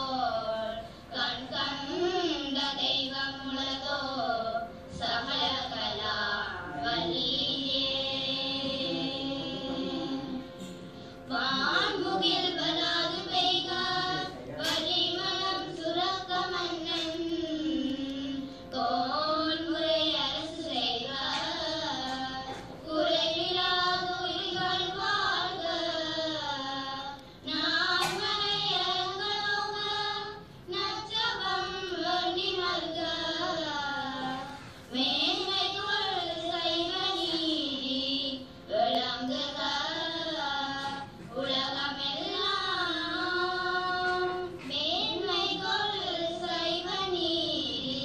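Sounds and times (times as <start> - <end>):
steady drone: 0.0 - 25.9
girls singing a hymn: 0.0 - 48.0.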